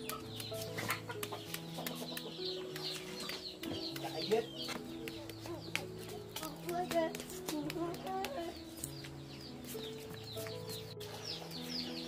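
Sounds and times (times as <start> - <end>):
chickens clucking: 0.0 - 6.9
knife cutting shallots: 0.0 - 9.0.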